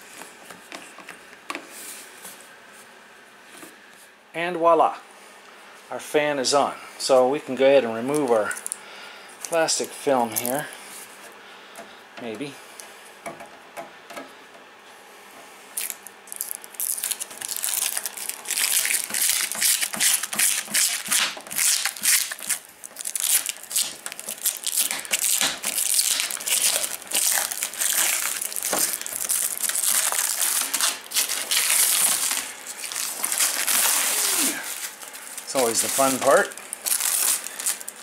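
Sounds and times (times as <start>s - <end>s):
plastic film crinkling as peeled: 8.1s - 8.8s, 9.4s - 10.7s, 15.7s - 38.0s.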